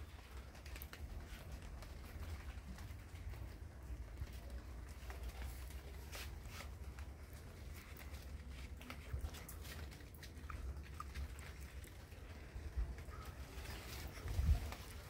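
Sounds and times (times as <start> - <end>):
wind rumble on microphone: 12.4 - 15.0.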